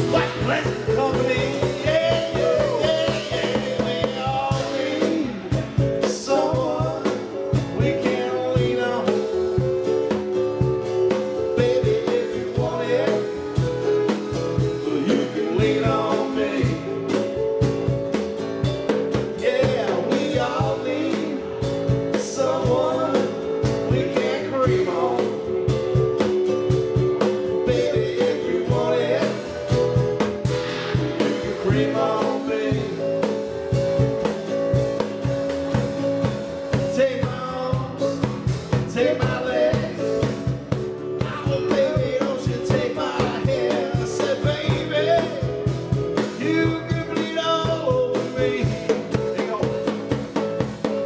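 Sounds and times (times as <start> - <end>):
electric bass: 0.0 - 51.0
electric guitar: 0.0 - 51.0
steady drum beat: 0.0 - 51.0.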